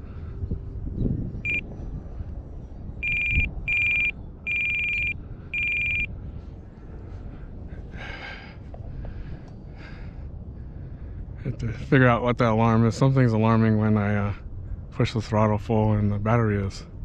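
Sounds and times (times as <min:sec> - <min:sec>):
electronic alarm beeping: 0:01.4 - 0:01.7, 0:03.0 - 0:06.1.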